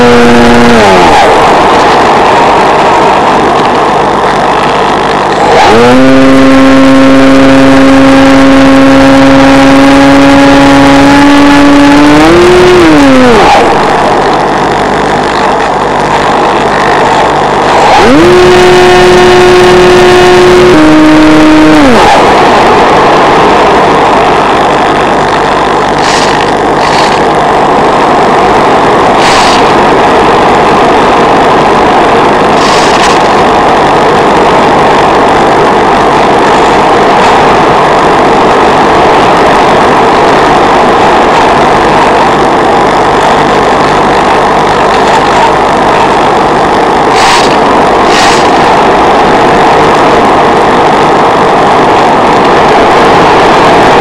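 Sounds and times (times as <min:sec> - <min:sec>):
short crackles: 0:00.0 - 0:35.6, 0:46.9 - 0:49.0
electric motor and propeller whine: 0:00.0 - 0:54.0
wind rushing past microphone: 0:00.0 - 0:54.0.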